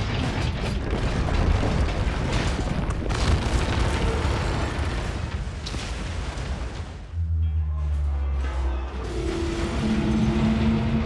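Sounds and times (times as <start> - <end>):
debris crashing: 0.0 - 7.1
deep rumble of collapsing building: 0.0 - 11.0.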